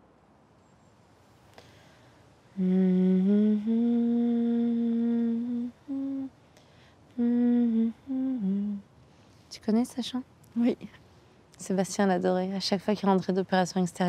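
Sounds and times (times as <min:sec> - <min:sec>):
woman humming a slow melody: 0:02.5 - 0:06.4, 0:07.1 - 0:08.9.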